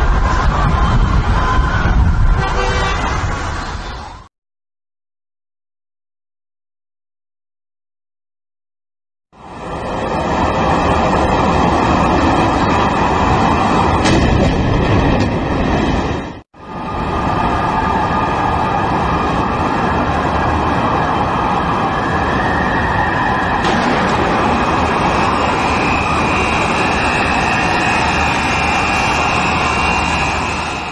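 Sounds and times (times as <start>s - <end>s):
jet engines roaring: 0.0s - 4.3s, 9.4s - 30.9s
harsh high whine: 9.4s - 30.9s
crash rumble: 14.0s - 16.4s, 23.6s - 28.9s.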